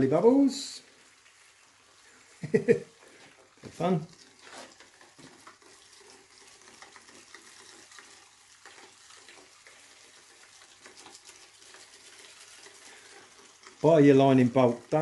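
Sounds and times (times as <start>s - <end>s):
soapy water fizzing and trickling: 0.0s - 15.0s.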